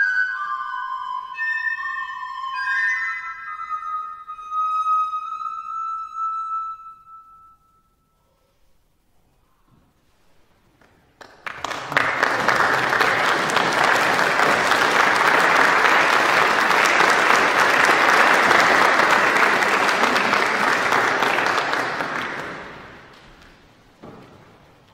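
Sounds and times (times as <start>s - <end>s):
audience applauding: 10.8s - 23.6s.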